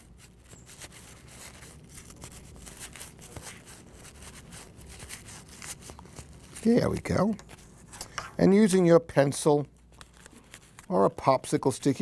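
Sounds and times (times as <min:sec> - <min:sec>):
plastic pocket crinkling: 0:09.8 - 0:11.0.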